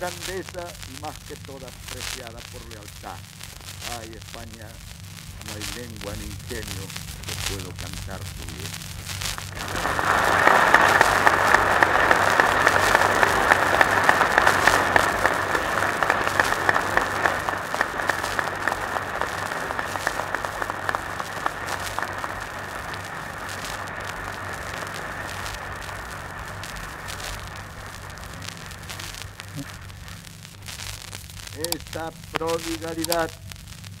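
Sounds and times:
steady low hum: 0.0 - 34.0
muffled audience applause: 9.6 - 30.0.

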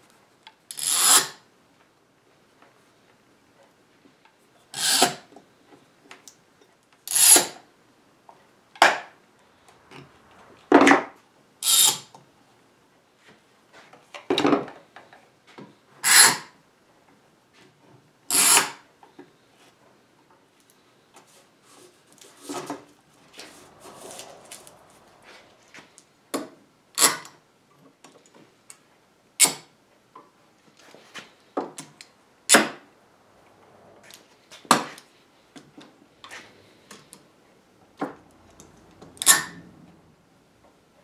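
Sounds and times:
clamp jaw scraping along metal bar: 7.1 - 7.6, 11.6 - 12.1, 18.3 - 18.8.

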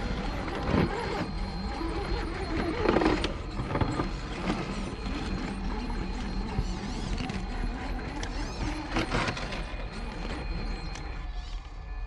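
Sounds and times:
small electric motor whining: 0.0 - 12.0.

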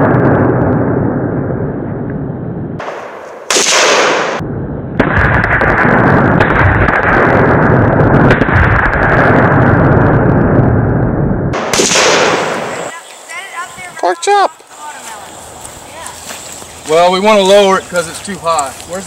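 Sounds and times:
exploding targets blasts: 0.0 - 12.9
rifle gunfire: 2.8 - 4.4, 5.0 - 9.7, 11.6 - 12.9.

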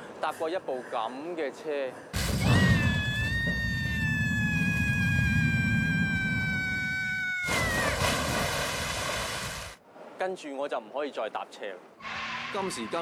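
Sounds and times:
boy screaming: 2.2 - 8.2.

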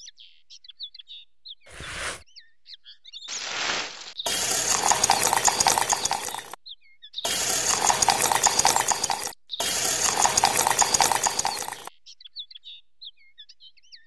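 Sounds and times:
wet cement pouring and spattering: 3.3 - 6.6.

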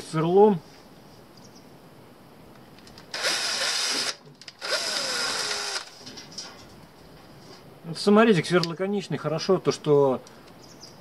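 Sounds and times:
drill driving screw through metal: 3.1 - 6.0.

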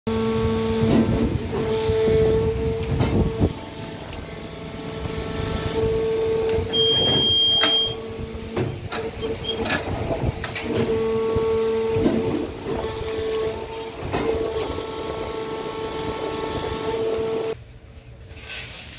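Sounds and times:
moulding machine humming: 0.1 - 17.6
safety door clacks: 6.6 - 8.0.

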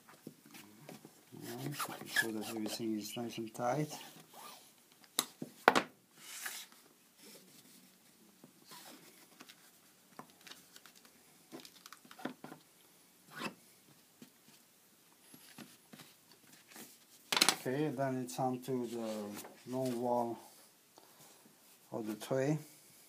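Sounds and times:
cloth rubbing on board: 1.4 - 2.8.

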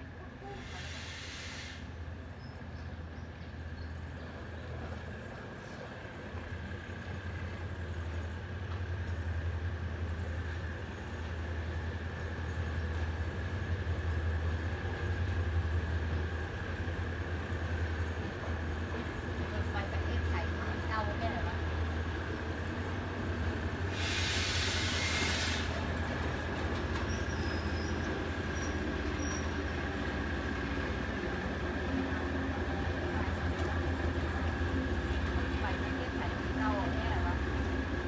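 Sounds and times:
diesel train rumbling: 0.0 - 38.0
brief hiss: 0.6 - 1.9, 23.9 - 25.8.

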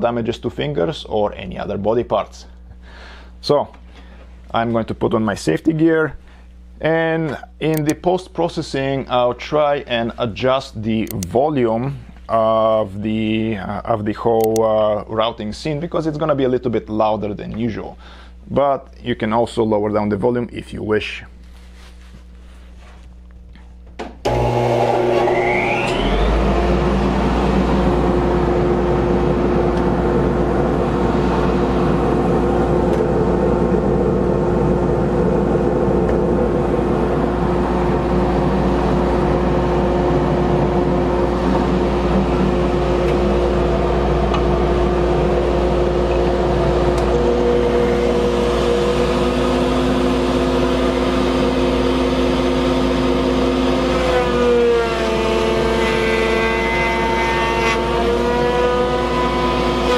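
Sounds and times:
router motor whine: 24.2 - 59.9
dust collector whoosh and hum: 24.5 - 59.9.

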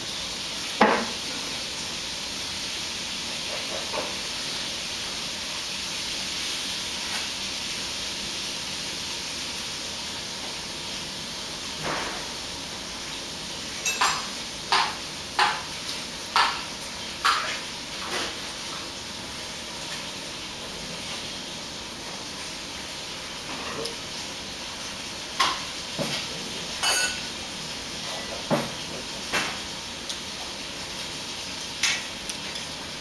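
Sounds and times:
chopsticks clinking on bowls: 13.8 - 14.3, 26.8 - 27.2.

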